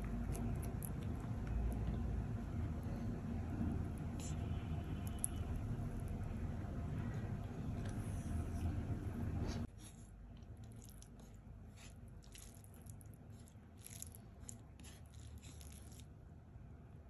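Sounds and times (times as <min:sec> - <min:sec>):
low rumbling noise: 0:00.0 - 0:09.7
fingers squishing rice: 0:09.6 - 0:16.2.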